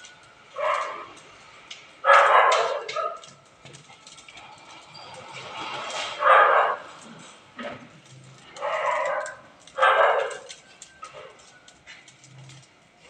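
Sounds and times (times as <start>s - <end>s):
straw pile crackling as it burns: 0.0s - 13.0s
dog barking: 0.6s - 1.1s, 2.0s - 3.2s, 6.2s - 6.8s, 8.6s - 10.5s.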